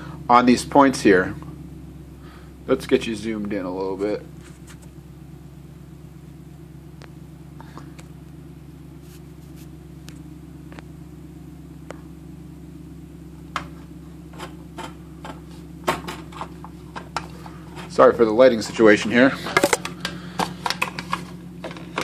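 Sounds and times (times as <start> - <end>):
low mechanical hum: 0.0 - 22.0
tools tapping and knocking: 14.3 - 17.9.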